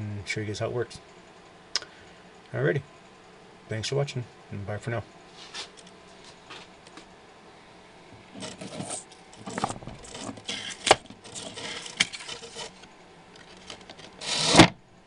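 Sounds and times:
plastic case rustling and scraping: 8.3s - 14.7s.

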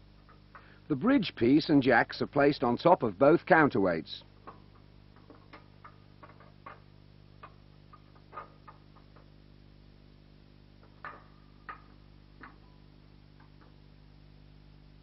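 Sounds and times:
steady low hum: 0.0s - 15.0s
faint irregular clicks: 4.4s - 9.3s.

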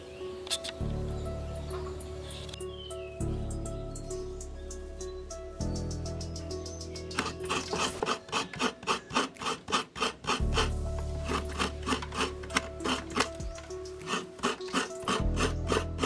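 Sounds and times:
coconut scraped on serrated blade: 7.2s - 16.0s.

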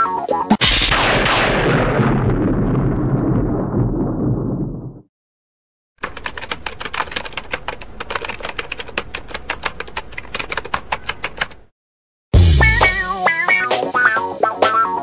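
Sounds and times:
rapid sharp clicks: 6.0s - 11.7s
loud rumbling: 12.4s - 13.1s.

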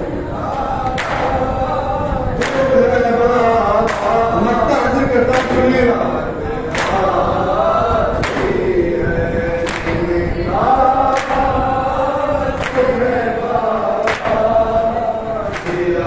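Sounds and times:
men chanting a slow lament: 0.0s - 16.0s
hands slapping chests: 14.1s - 14.4s.

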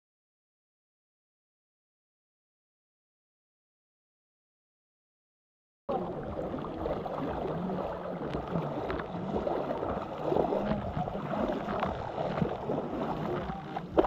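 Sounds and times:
small water splashes: 5.9s - 14.0s
water lapping and sloshing: 5.9s - 14.0s.

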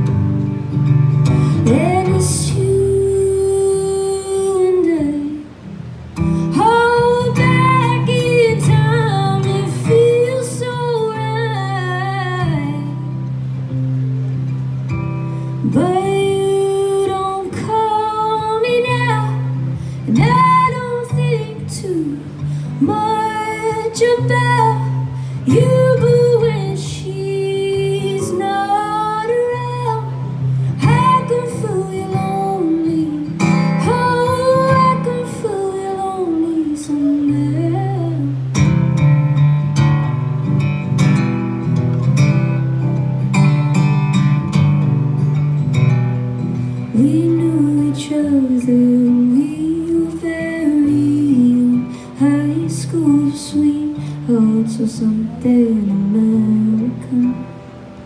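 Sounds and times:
strummed acoustic guitar: 0.0s - 58.0s
woman singing: 1.2s - 13.3s, 15.5s - 38.7s, 46.8s - 57.6s.

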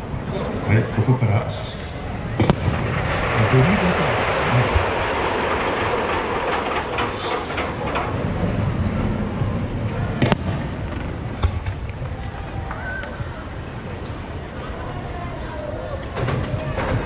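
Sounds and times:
firework bursts rumbling: 1.9s - 14.4s
sharp firework report: 2.2s - 12.4s.

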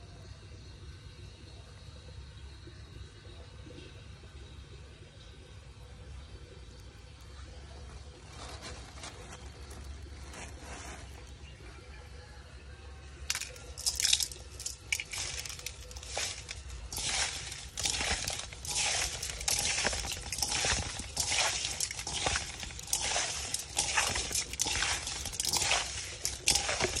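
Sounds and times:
wet gritty squishing and scraping: 7.8s - 11.5s, 13.3s - 27.0s.

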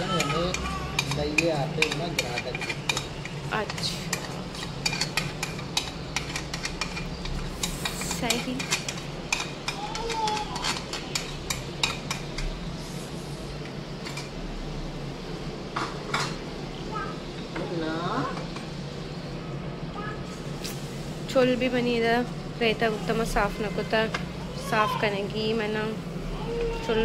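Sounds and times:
metal spoon scraping a pan: 0.0s - 9.6s
food sizzling: 0.0s - 27.0s.

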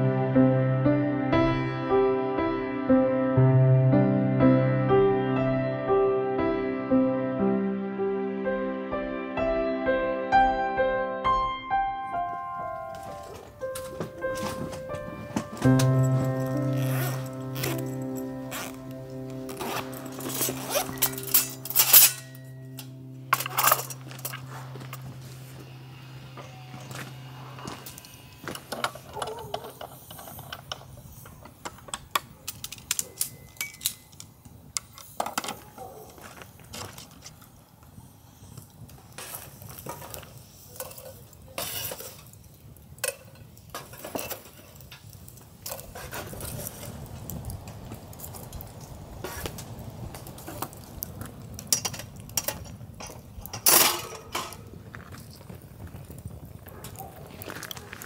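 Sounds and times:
metal grill parts clinking: 19.5s - 25.1s, 31.6s - 35.6s, 43.0s - 46.8s, 51.7s - 54.7s
grill grate clanking onto box: 20.1s - 24.5s, 51.7s - 54.7s.

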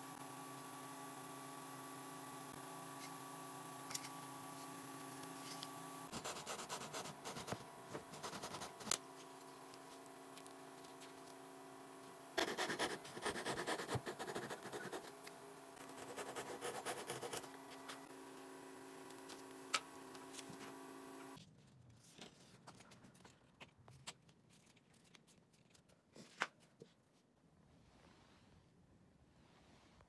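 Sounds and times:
steady hum: 0.0s - 21.4s.

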